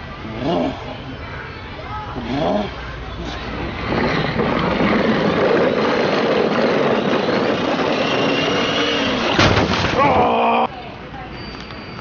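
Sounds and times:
toy wheels rumbling on hard floor: 0:03.5 - 0:09.4.

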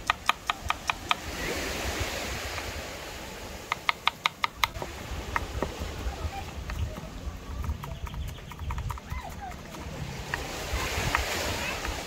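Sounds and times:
knife chopping on wooden board: 0:00.0 - 0:01.3, 0:03.7 - 0:12.0
waves washing on shore: 0:00.0 - 0:07.9, 0:08.9 - 0:12.0.

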